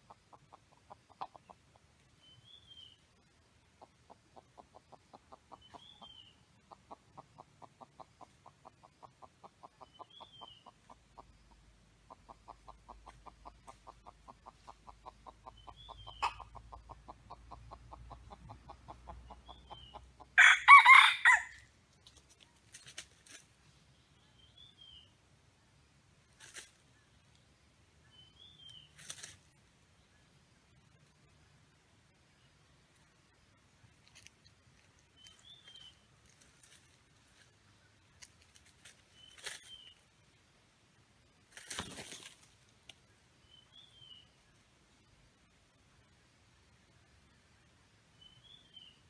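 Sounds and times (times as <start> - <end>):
rooster crowing: 20.4 - 21.6.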